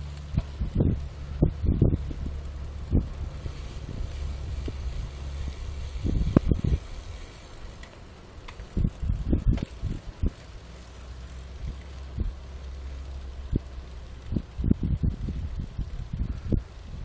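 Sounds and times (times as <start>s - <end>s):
knocks and bumps from riding: 0.0s - 2.2s, 7.7s - 12.4s
bicycle tyres rolling on asphalt: 0.0s - 17.0s
wind rumble on microphone: 0.3s - 10.6s, 11.4s - 17.0s.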